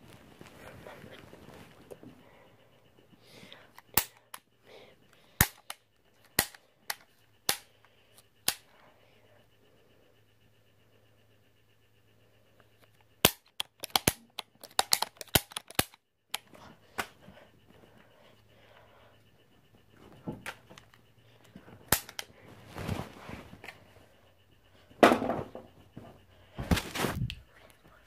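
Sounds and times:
toy pistol clicking: 3.6 - 4.5, 5.1 - 8.8, 12.8 - 17.2, 20.4 - 22.4
rustling: 20.1 - 24.2, 26.4 - 27.6.

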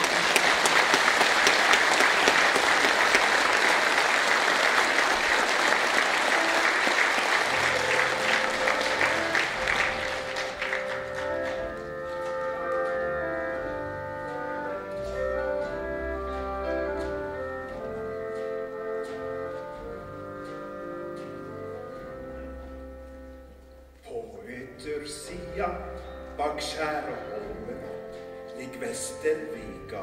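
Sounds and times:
audience applauding: 0.0 - 13.0
live band playing: 4.0 - 23.5.

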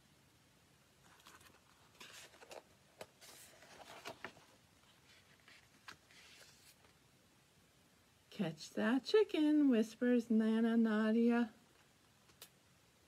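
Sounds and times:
paper page rustling: 1.0 - 7.0.

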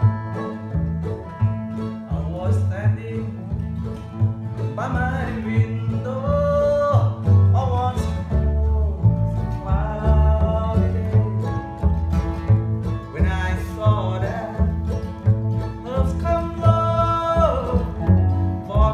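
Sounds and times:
mandolin: 0.0 - 18.9
resonator guitar with steel bar: 0.0 - 18.9
strummed acoustic guitar: 0.0 - 18.9
person singing: 4.6 - 11.8, 15.8 - 18.9.

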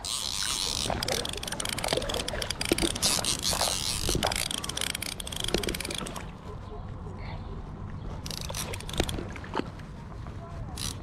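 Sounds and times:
fly reel clicking: 0.0 - 6.2, 8.3 - 9.3, 10.8 - 11.0.

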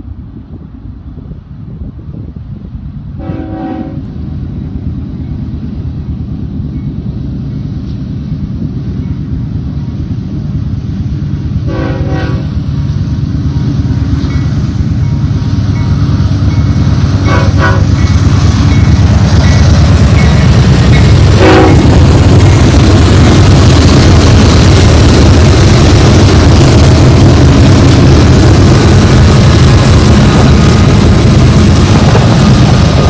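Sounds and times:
diesel locomotive engine rumble: 0.0 - 33.0
locomotive horn blasts: 3.2 - 4.2, 11.6 - 12.6, 17.2 - 18.0, 21.4 - 22.0.

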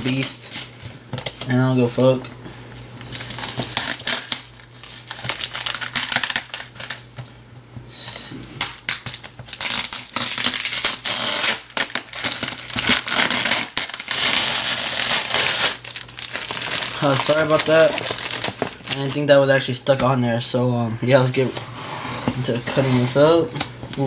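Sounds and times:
packing tape peeling and crinkling: 3.0 - 7.0, 8.6 - 19.3.

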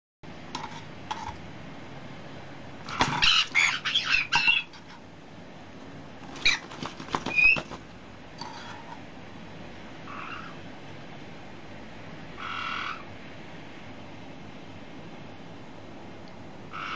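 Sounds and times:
parrots squawking and chirping: 2.9 - 5.0, 6.3 - 7.8, 10.0 - 10.6, 12.4 - 13.1.

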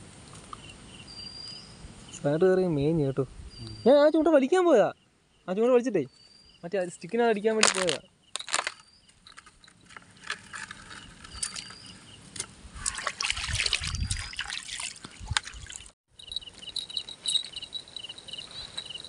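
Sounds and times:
insects chirping in trills: 0.5 - 2.8, 3.5 - 12.3, 16.1 - 19.0
water sloshing and trickling: 7.6 - 18.1.

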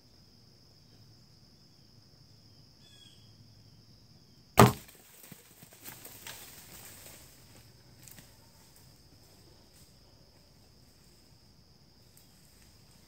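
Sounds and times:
high insect buzz: 0.0 - 5.0
bow shot crack: 4.6 - 5.0
rustling and crunching in dry leaves: 4.8 - 8.2.

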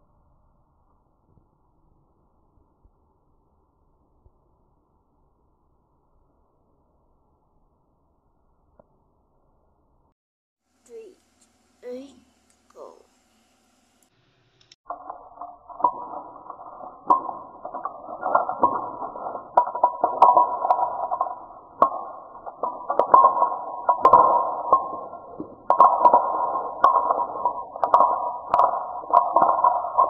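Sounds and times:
wooden sticks and dominoes clacking: 14.9 - 30.0.

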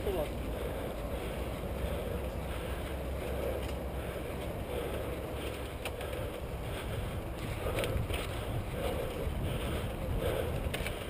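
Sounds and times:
bike rattling: 0.0 - 11.0
wind on microphone: 6.6 - 11.0.

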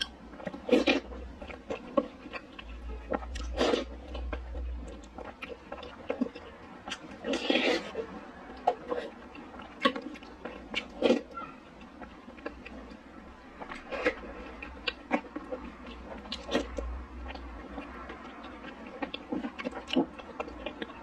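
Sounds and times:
person slurping from spoon: 7.2 - 8.0.

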